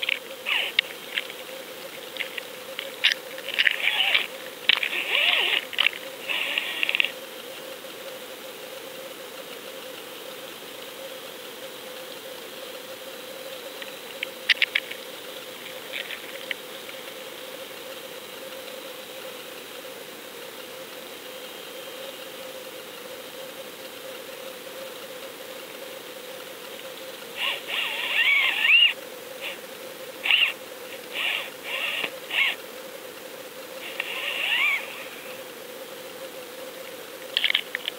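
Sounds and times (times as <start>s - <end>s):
sharp clicks: 0.0s - 7.2s, 13.8s - 15.0s, 37.2s - 37.9s
faint hum: 0.0s - 37.9s.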